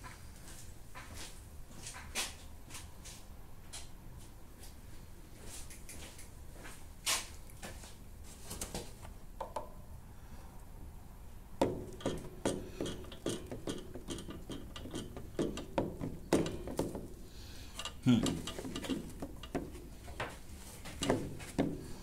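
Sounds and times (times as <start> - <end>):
screwdriver clicking on metal: 11.9 - 16.9, 17.7 - 20.2.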